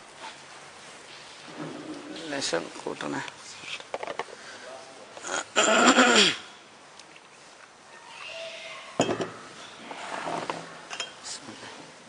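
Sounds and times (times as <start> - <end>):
tableware clinking: 9.0 - 9.5, 10.9 - 11.3.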